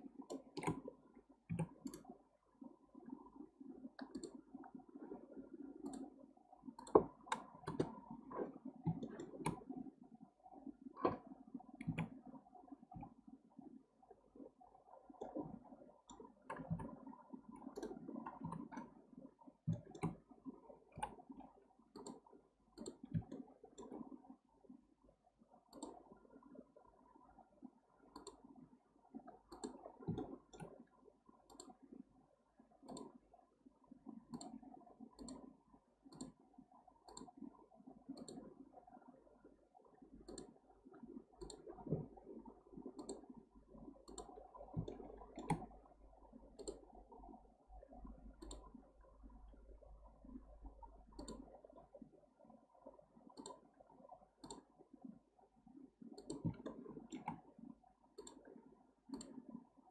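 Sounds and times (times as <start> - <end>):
faint computer mouse clicks: 0.2 - 0.9, 1.5 - 2.1, 4.0 - 4.7, 5.8 - 6.1, 6.8 - 8.0, 11.8 - 12.2, 19.7 - 20.2, 20.9 - 21.2, 21.9 - 24.1, 25.7 - 26.0, 28.1 - 28.5, 29.5 - 30.8, 31.5 - 31.8, 32.8 - 33.2, 34.3 - 34.6, 35.2 - 35.5, 36.1 - 36.4, 37.0 - 37.4, 38.1 - 38.5, 40.2 - 40.6, 41.4 - 41.8, 43.0 - 43.3, 44.0 - 45.8, 46.5 - 46.9, 48.4 - 48.7, 51.1 - 51.6, 53.3 - 53.6, 54.4 - 54.7, 56.2 - 57.5, 58.2 - 59.5.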